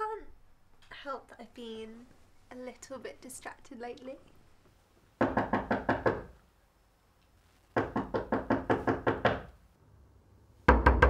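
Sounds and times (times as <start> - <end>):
fist knocking on wooden door: 5.2 - 6.3, 7.8 - 9.5.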